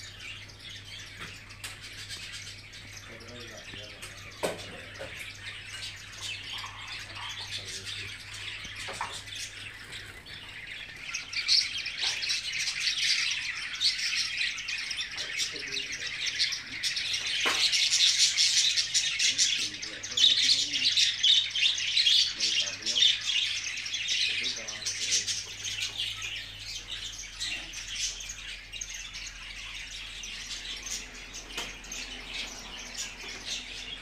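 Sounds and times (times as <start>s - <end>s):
caged birds chirping: 0.0s - 34.0s.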